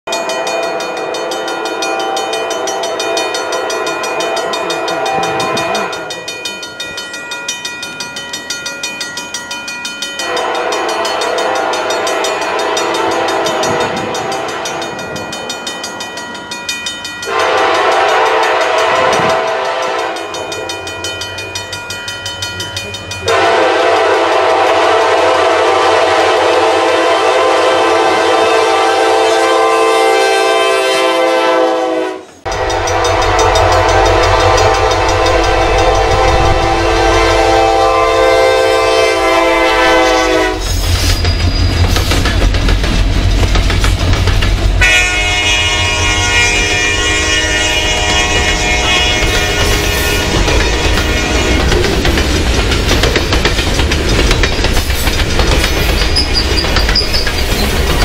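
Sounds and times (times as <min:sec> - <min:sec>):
locomotive air horn blasts: 0:01.3 - 0:06.1, 0:10.2 - 0:14.8, 0:17.2 - 0:20.5, 0:23.2 - 0:40.8, 0:44.8 - 0:51.9.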